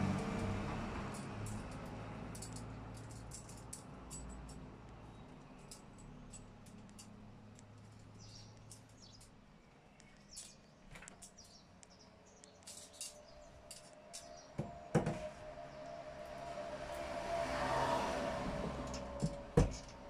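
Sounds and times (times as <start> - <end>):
saw chain clinking and rattling: 0.4 - 4.7, 5.4 - 7.2, 7.8 - 9.4, 12.6 - 14.5.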